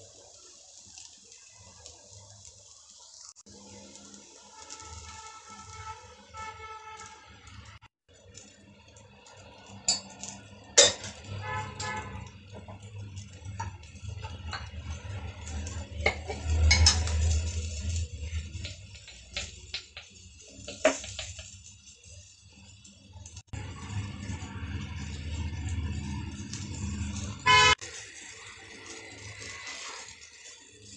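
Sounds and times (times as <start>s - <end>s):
metal utensils clinking on pan: 9.5s - 21.6s.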